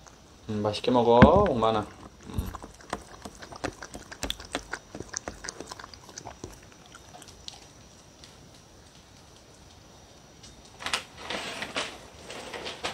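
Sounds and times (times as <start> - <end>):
dog lapping and chewing: 1.8 - 7.8.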